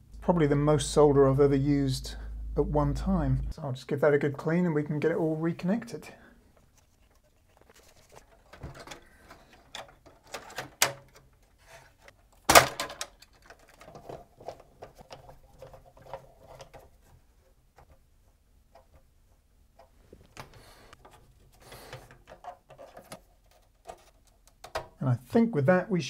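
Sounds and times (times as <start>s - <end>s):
clicks and knocks handling electronics: 6.5s - 18.1s, 19.7s - 25.0s.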